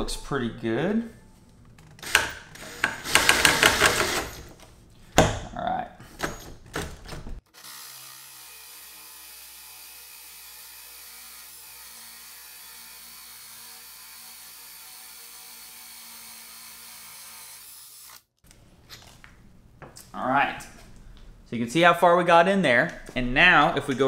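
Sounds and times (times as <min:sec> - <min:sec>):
cordless drill boring into wood: 0:02.0 - 0:04.5, 0:07.5 - 0:18.2.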